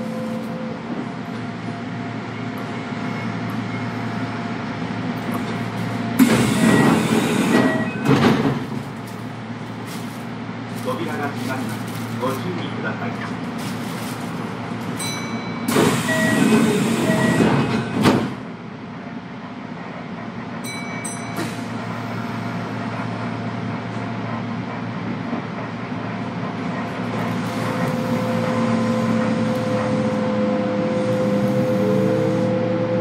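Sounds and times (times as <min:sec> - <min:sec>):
train running rumble: 0:00.0 - 0:33.0
train brake hiss: 0:15.7 - 0:17.5
train motors whining: 0:27.1 - 0:33.0.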